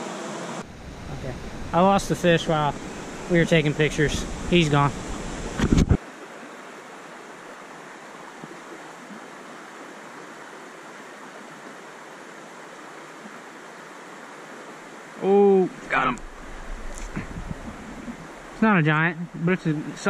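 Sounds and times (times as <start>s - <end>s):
stream flowing over rocks: 1.6s - 20.0s
microphone handling noise: 5.0s - 6.0s, 15.8s - 18.5s.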